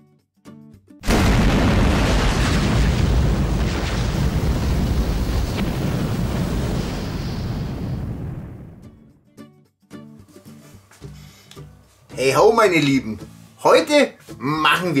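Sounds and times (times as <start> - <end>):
explosion boom and rumble: 1.0 - 9.0.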